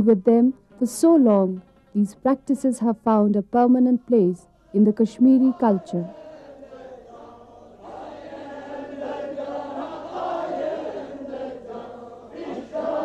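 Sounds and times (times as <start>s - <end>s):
men chanting together: 4.6s - 13.0s.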